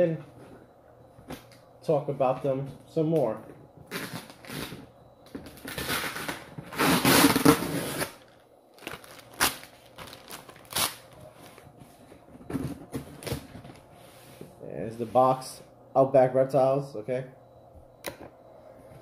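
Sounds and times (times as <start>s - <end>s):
packing rustling and tearing: 5.4s - 11.6s.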